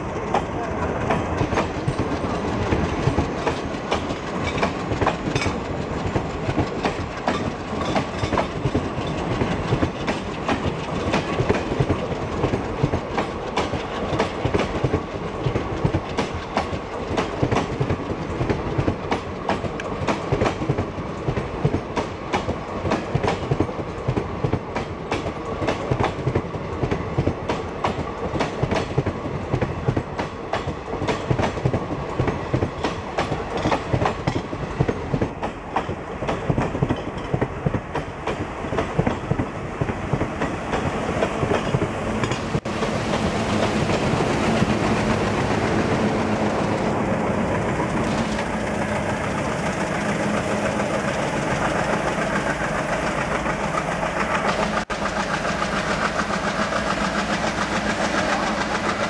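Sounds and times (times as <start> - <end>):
train wheels clattering over rail joints: 0.1 - 59.0.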